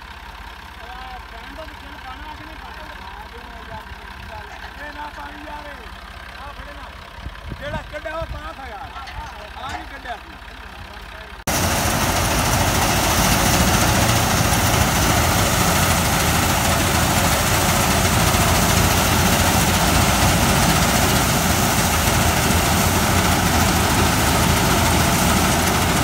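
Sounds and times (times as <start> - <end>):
tractor diesel engine running: 0.0 - 26.0
thresher drum whirring: 11.5 - 26.0.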